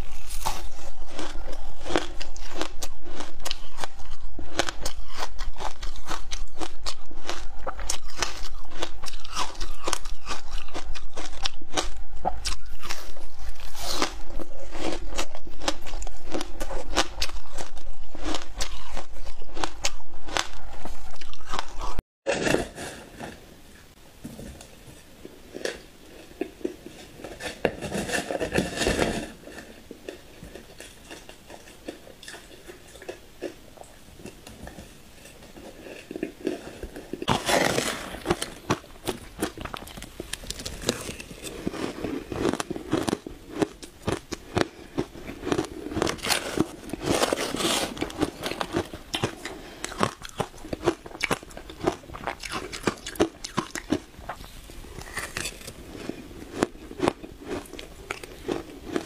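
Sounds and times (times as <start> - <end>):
chewing shaved ice: 0.0 - 22.8, 25.5 - 59.0
ice being crunched: 37.2 - 44.7, 45.5 - 59.0.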